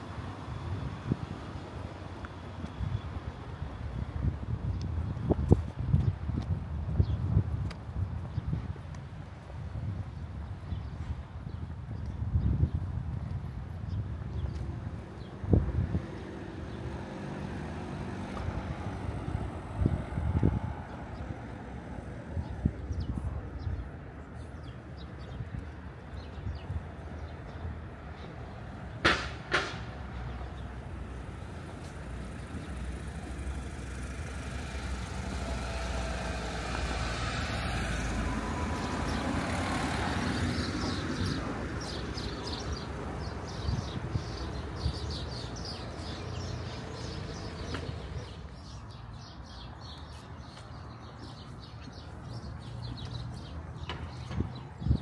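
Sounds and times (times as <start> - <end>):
sharp knocks: 29.0 - 29.9
vehicle passing: 30.0 - 55.0.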